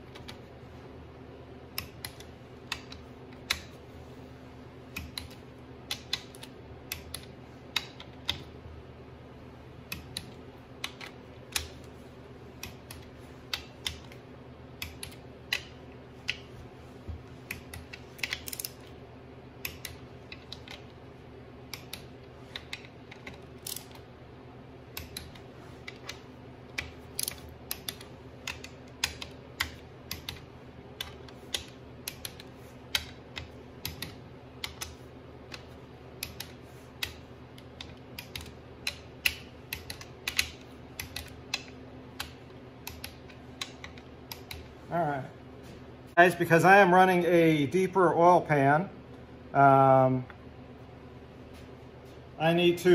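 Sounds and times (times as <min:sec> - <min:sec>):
steady low hum: 0:00.0 - 0:52.9.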